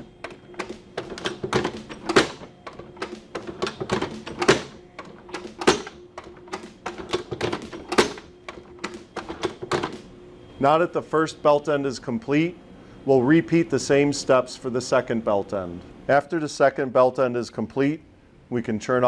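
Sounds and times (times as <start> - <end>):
hydraulic power pack hum: 0.0 - 14.4.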